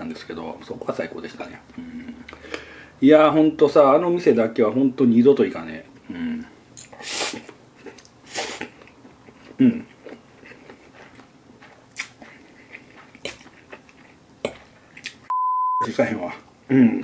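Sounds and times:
man humming: 6.1 - 6.5, 16.7 - 17.0
chewing: 6.8 - 15.3
man slurping noodles: 7.0 - 7.6, 8.2 - 8.8.

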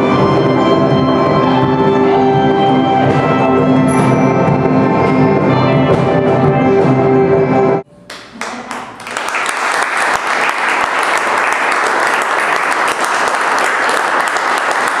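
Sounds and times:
audience clapping: 8.1 - 15.0.

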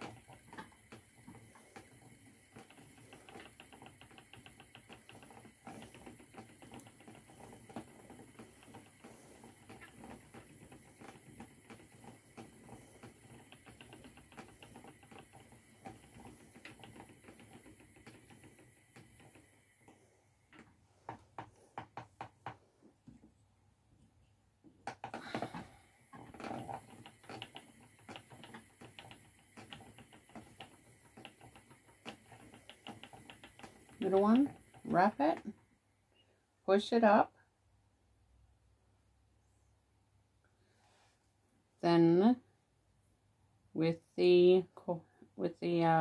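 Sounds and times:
yarn ticking and rustling: 0.0 - 23.4, 24.6 - 35.7.

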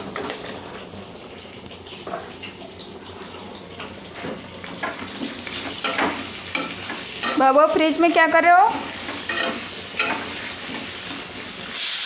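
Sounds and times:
potatoes frying in hot oil: 0.0 - 12.0
spoon clicking and scraping: 9.3 - 10.2.

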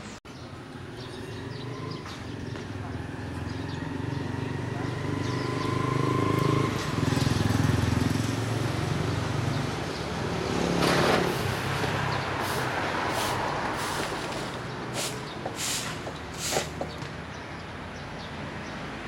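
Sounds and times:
short loud hiss: 15.0 - 16.8.

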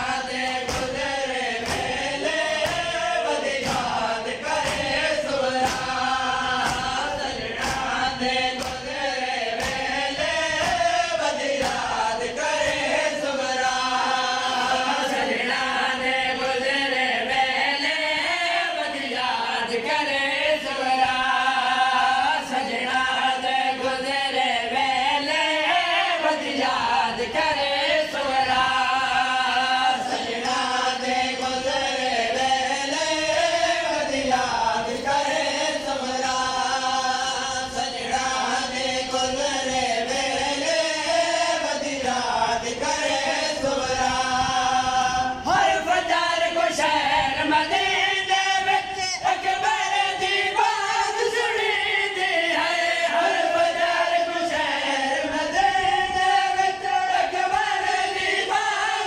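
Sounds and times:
hands slapping chests: 0.0 - 13.0
men chanting over loudspeakers: 0.0 - 59.0.

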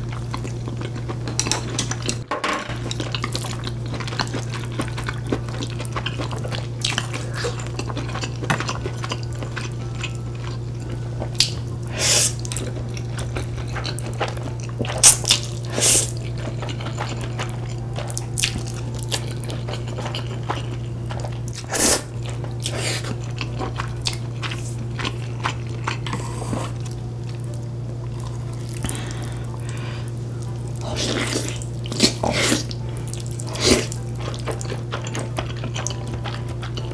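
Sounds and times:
steady low hum: 0.0 - 36.9
wet chewing and mouth clicks: 2.9 - 27.6, 30.8 - 36.9.

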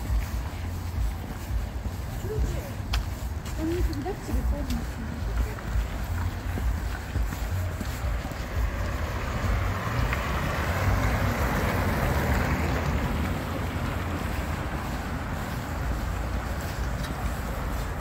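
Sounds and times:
car passing with tyre hiss: 4.8 - 18.0.

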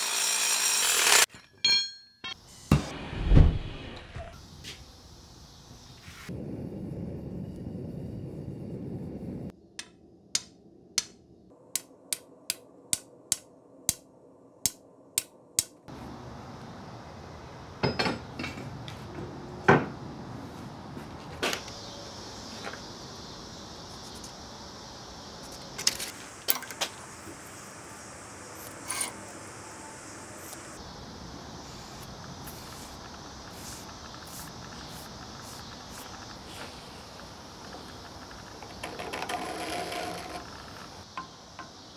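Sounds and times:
steady background hiss: 21.4 - 41.9.

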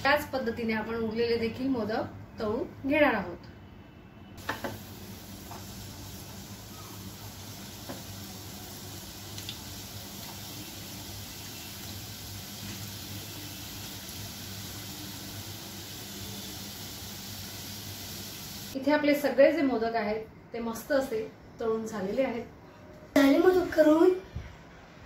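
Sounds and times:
food sizzling in hot oil: 4.4 - 18.8.

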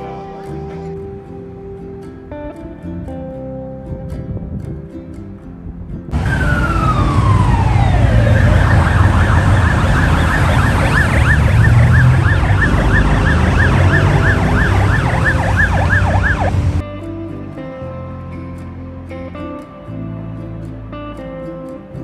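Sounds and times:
low rumble of street traffic: 0.0 - 22.0
police car siren wailing and yelping: 6.1 - 16.8.

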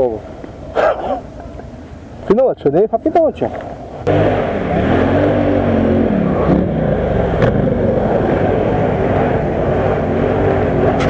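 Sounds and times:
quad bike engine revving: 4.0 - 11.0.

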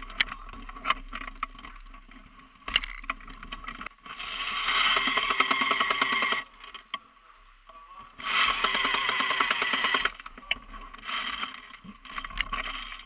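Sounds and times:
airsoft gun firing bursts: 4.7 - 6.5, 8.2 - 10.2.

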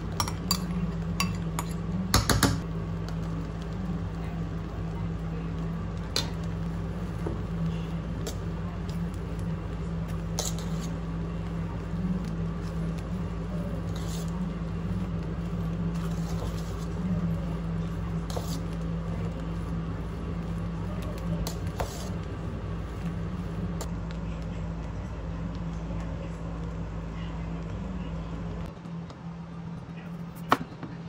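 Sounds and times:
steady low hum: 0.0 - 31.0
rice stirred in a metal pot: 5.9 - 23.8.

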